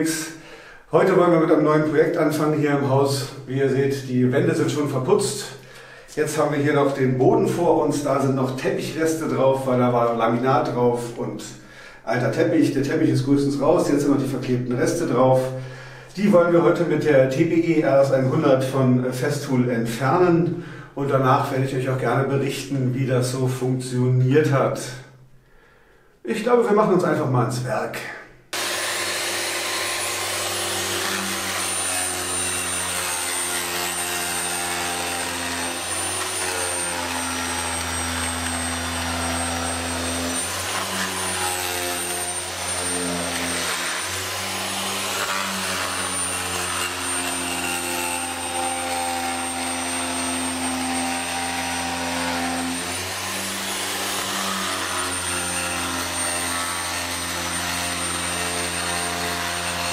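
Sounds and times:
carpet remover scraping floor: 28.5s - 59.9s.

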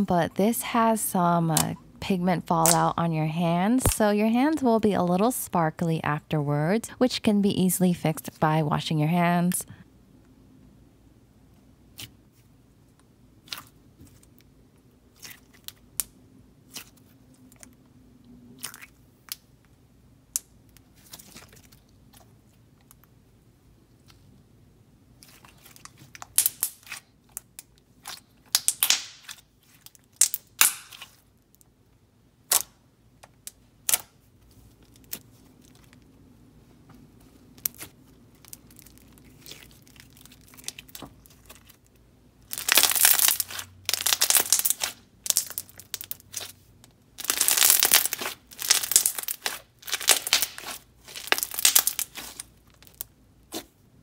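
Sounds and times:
slime popping and squishing: 2.5s - 3.0s, 25.2s - 31.2s, 37.5s - 41.8s, 42.4s - 46.6s, 47.2s - 53.7s.

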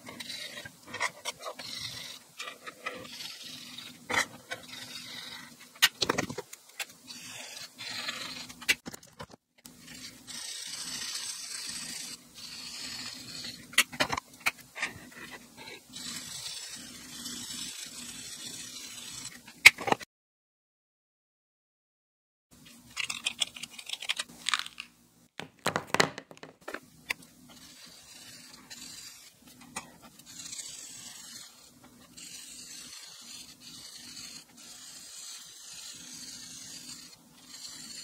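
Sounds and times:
marker scratching across paper: 0.0s - 6.3s, 7.0s - 8.6s, 9.7s - 13.8s, 14.8s - 19.4s, 27.4s - 38.0s.

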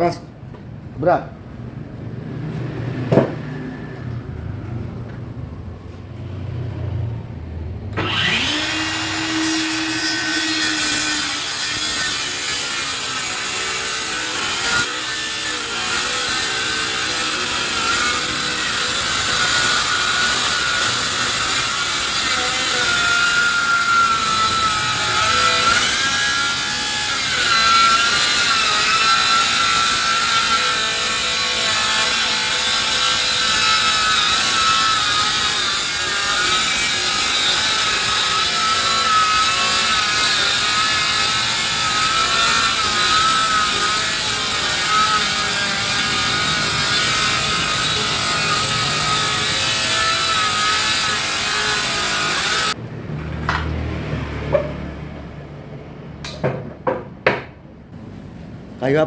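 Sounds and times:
circular saw cutting wood: 8.0s - 52.8s.

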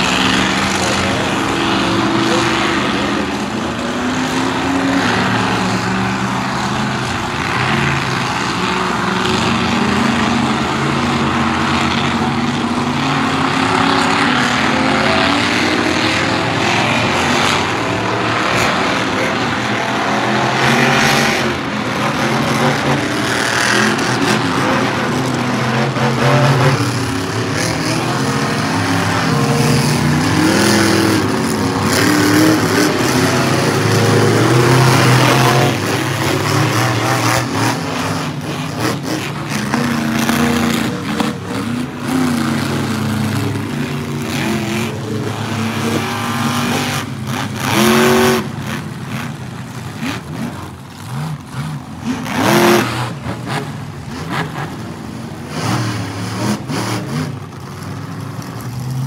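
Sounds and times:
monster truck engines revving: 0.0s - 59.0s.

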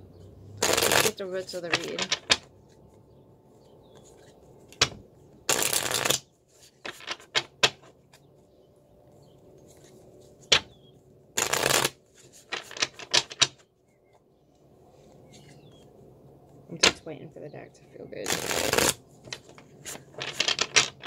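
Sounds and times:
cards riffling together: 18.3s - 21.0s.

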